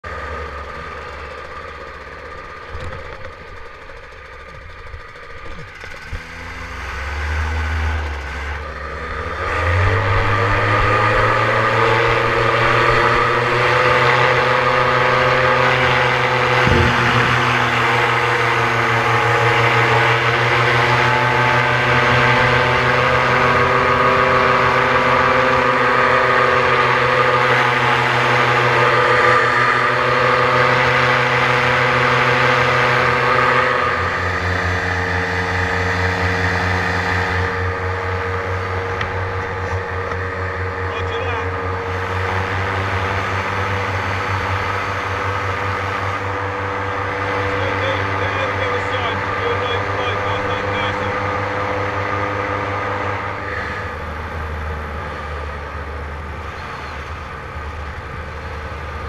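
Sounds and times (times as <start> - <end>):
paramotor engine and propeller: 0.0 - 59.0.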